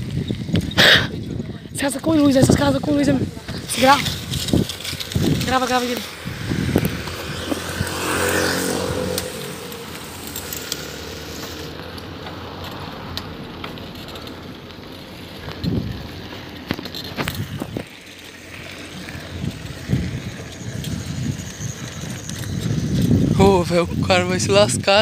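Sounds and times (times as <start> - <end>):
wind on microphone: 0.0 - 10.4, 15.4 - 17.9, 19.0 - 25.0
bicycle rattles and knocks: 0.0 - 25.0.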